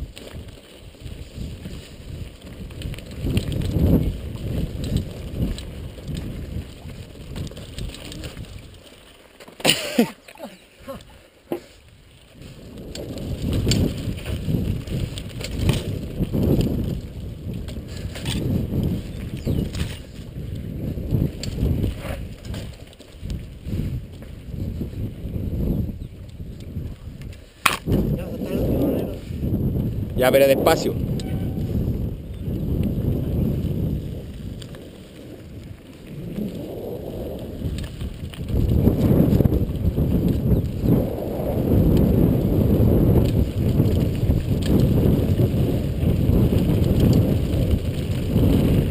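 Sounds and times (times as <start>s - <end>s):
wind rumbling on microphone: 0.0s - 9.4s, 10.8s - 48.9s
bike clicks and rattles: 0.0s - 48.9s
tyres crunching over dirt: 0.0s - 48.9s.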